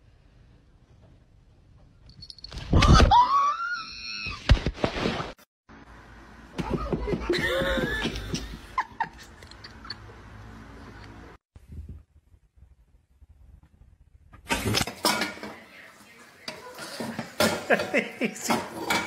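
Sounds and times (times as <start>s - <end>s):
person laughing: 6.6s - 10.1s, 17.5s - 18.7s.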